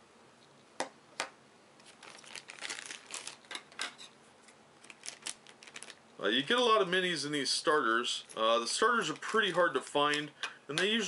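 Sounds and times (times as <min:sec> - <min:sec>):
plastic bag crinkling: 0:01.8 - 0:04.1, 0:04.8 - 0:06.0.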